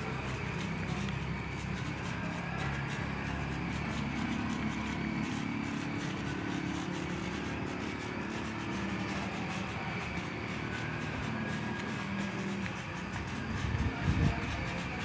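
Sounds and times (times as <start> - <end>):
distant engine humming: 0.0 - 15.0.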